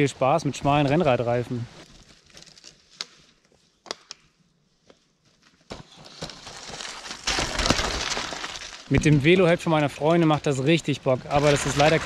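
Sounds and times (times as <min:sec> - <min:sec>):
bike tyres crunching on stones: 0:05.2 - 0:12.0.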